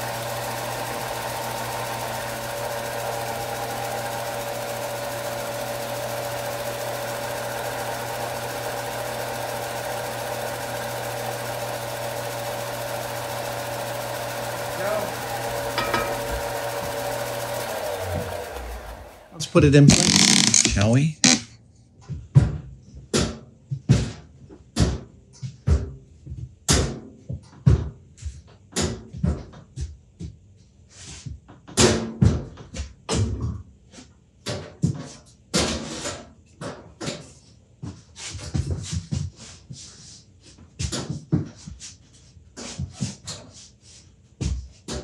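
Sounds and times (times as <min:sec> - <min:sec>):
tools clunking on workbench: 0:15.8 - 0:16.3.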